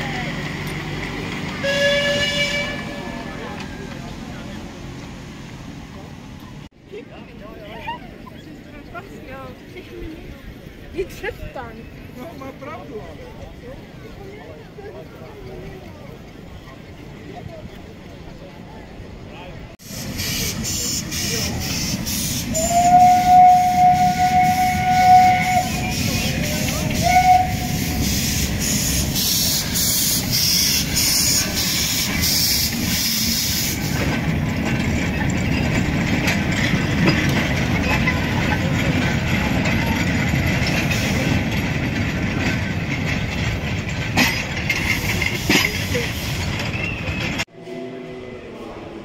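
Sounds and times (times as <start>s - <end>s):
rumble of train wheels: 0.0s - 49.0s
steam whistle blasts: 1.6s - 3.0s, 20.1s - 33.8s
steam hiss: 19.8s - 34.2s, 44.8s - 46.7s
steam locomotive exhaust chuffing: 19.8s - 47.4s.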